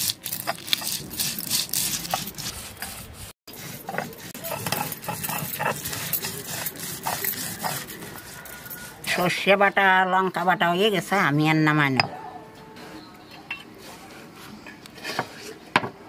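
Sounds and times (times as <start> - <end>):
stone scraping on stone slab: 0.0 - 9.2, 14.9 - 15.6.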